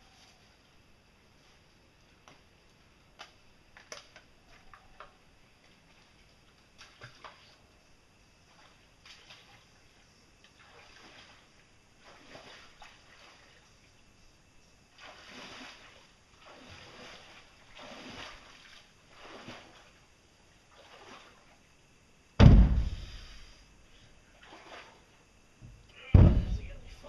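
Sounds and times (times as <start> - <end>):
concrete block thumping down: 22.4 - 23.2, 25.6 - 26.7.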